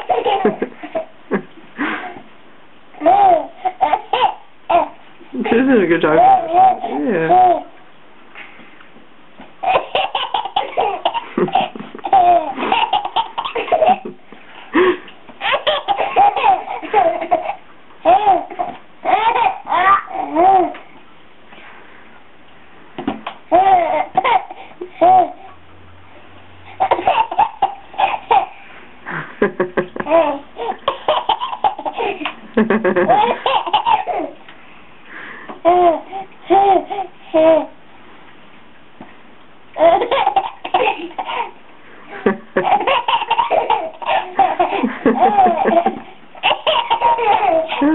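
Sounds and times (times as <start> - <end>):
baby laughing: 0.0 - 2.3, 3.0 - 5.6, 6.2 - 7.8, 9.6 - 14.2, 14.8 - 20.8, 23.2 - 25.5, 26.7 - 34.4, 35.6 - 37.8, 39.8 - 47.9.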